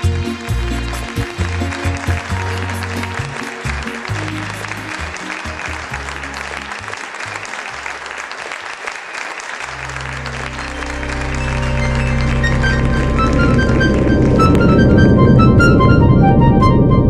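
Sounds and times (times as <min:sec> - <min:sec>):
music with a bass line: 0:00.0 - 0:06.4
applause: 0:00.0 - 0:15.1
low sustained tone: 0:10.0 - 0:17.0.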